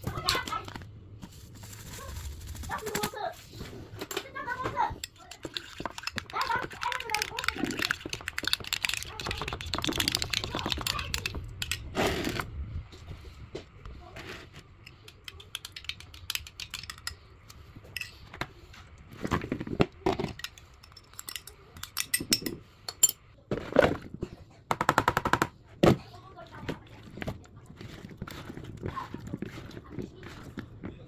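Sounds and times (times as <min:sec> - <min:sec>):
spoon and bowls clinking: 0:05.0 - 0:11.8, 0:14.8 - 0:18.2, 0:20.2 - 0:23.2.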